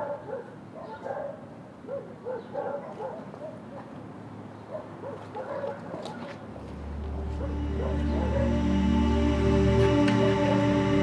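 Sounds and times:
dog barking: 0.0s - 4.0s, 4.7s - 6.4s, 7.4s - 8.5s.

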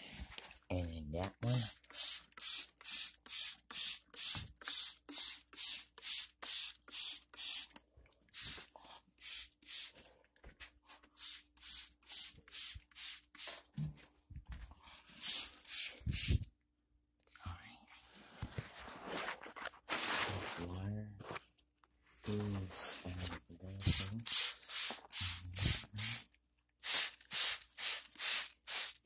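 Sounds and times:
spray bottle squirts: 1.6s - 10.0s, 11.1s - 13.7s, 15.1s - 16.5s, 23.8s - 29.0s.

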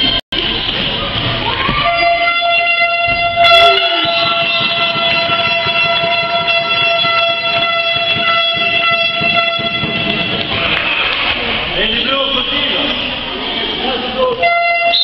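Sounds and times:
horn holding a long note: 1.8s - 10.5s.

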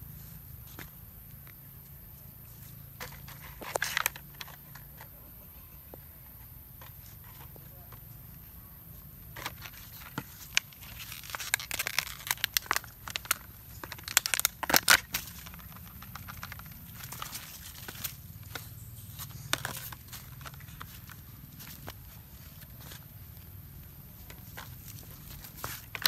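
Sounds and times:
plastic bottle crinkling: 9.4s - 23.5s, 24.1s - 26.0s.

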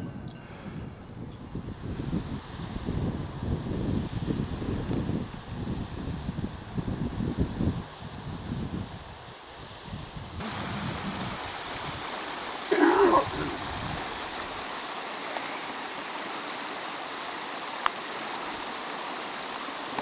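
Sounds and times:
stream rushing over rocks: 10.4s - 20.0s
short loud voice: 12.7s - 13.6s.

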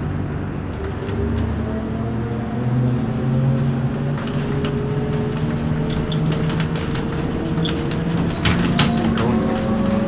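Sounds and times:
low road rumble: 0.0s - 10.0s
rattles and clicks of vehicle body: 0.6s - 1.7s, 3.5s - 10.0s.

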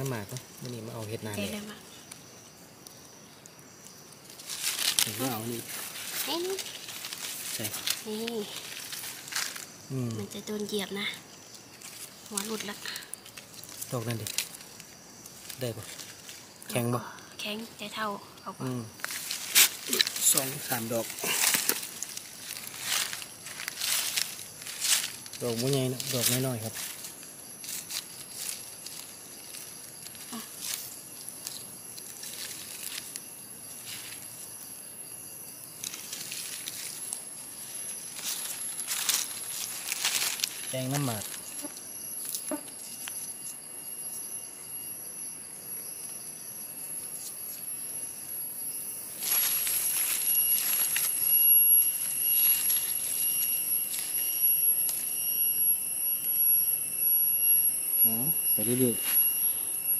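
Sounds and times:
faint clicks in undergrowth: 0.0s - 0.8s, 2.0s - 10.7s, 11.4s - 17.3s, 19.0s - 34.6s, 35.5s - 43.6s, 49.2s - 55.1s
high-pitched insect drone: 0.0s - 59.9s
dry leaf litter rustling: 4.2s - 16.9s, 19.0s - 34.7s, 35.7s - 42.4s, 49.1s - 55.1s.

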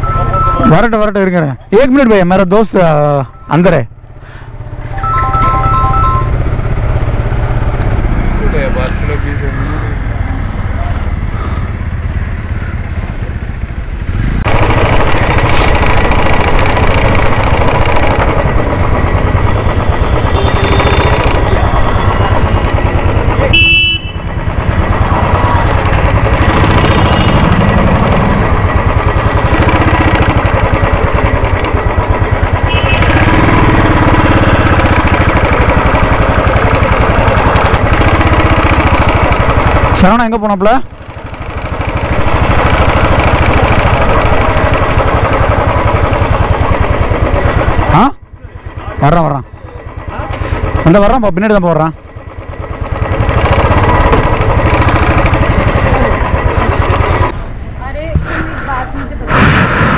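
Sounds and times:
motorcycle engine running: 0.0s - 59.9s
short horn beep: 20.2s - 22.5s, 23.4s - 24.3s, 32.6s - 33.2s.

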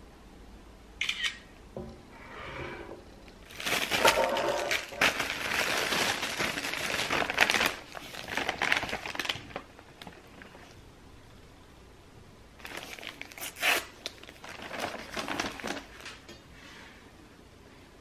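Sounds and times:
wrapping crinkling and rustling: 3.4s - 10.8s, 12.6s - 16.4s.

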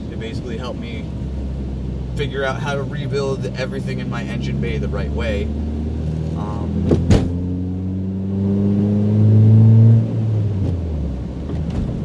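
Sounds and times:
car engine accelerating: 0.0s - 12.0s
sharp knocks: 6.8s - 7.4s.

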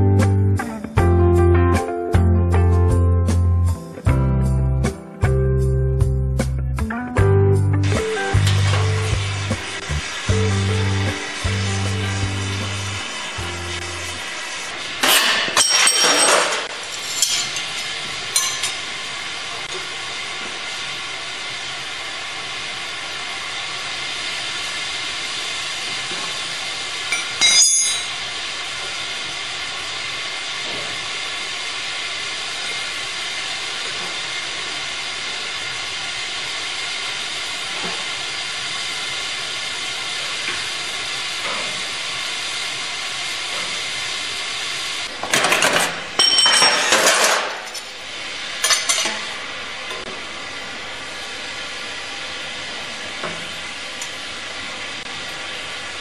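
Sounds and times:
gas torch flame hissing: 7.8s - 15.5s, 16.7s - 27.4s, 28.2s - 45.2s
metal clanks: 15.0s - 18.8s.

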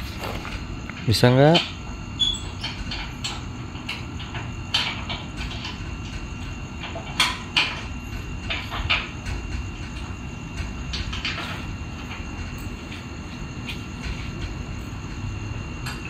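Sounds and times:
metal gate rattling and scraping: 0.0s - 13.0s.

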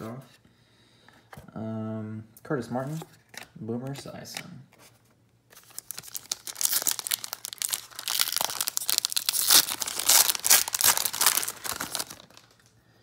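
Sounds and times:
plastic wrapper tearing and crinkling: 5.5s - 12.7s.

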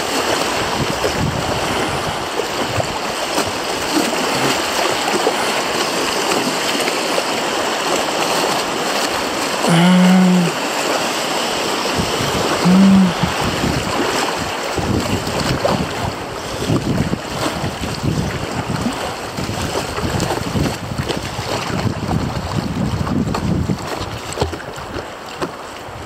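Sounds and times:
wind buffeting microphone: 0.0s - 6.5s, 11.7s - 25.2s
river water rushing through rapids: 0.0s - 26.0s.

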